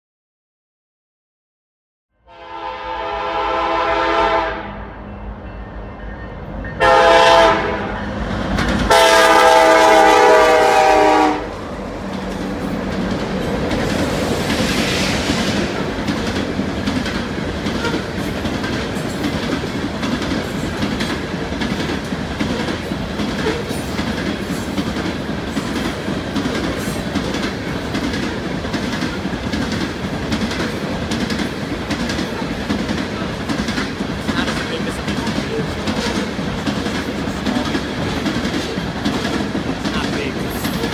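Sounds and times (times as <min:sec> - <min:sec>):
train horn blasts: 0:02.2 - 0:08.2, 0:08.9 - 0:11.6
freight cars rumbling past: 0:11.4 - 0:40.9
wheels clicking over rail joints: 0:15.6 - 0:40.9.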